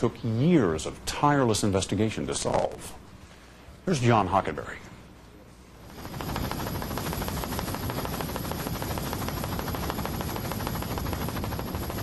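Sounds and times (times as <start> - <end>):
helicopter rotor chopping: 5.8 - 12.0.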